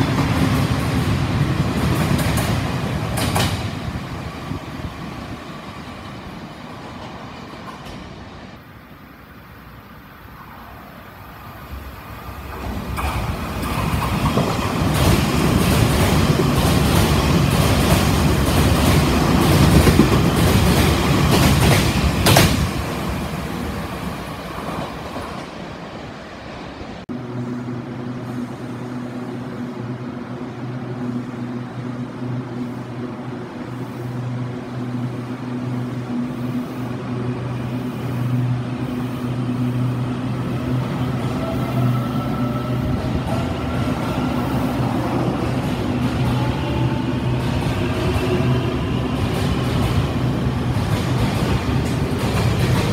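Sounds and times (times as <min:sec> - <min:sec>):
train rushing through station: 0:00.0 - 0:52.9
electric train hum with tones: 0:25.4 - 0:52.9.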